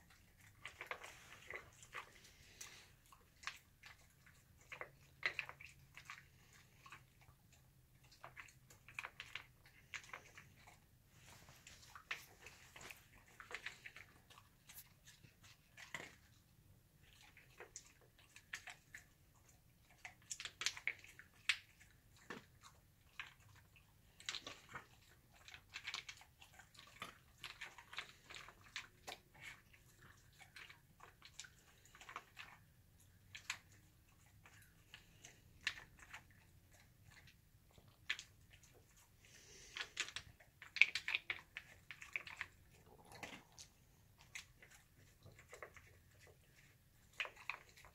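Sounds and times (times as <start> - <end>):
dog chewing food: 0.0 - 47.9.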